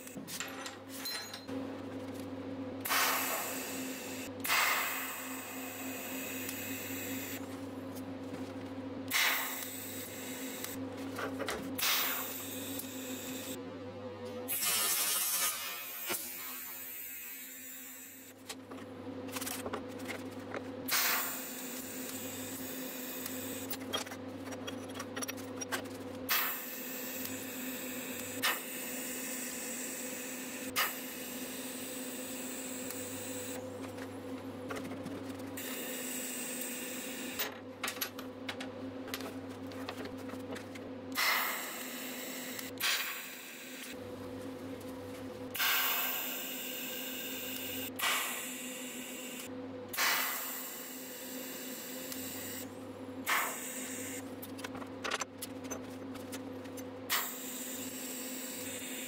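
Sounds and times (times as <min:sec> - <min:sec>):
electrical hum of equipment: 0:00.0 - 0:59.0
welding arc hissing: 0:09.1 - 0:10.8.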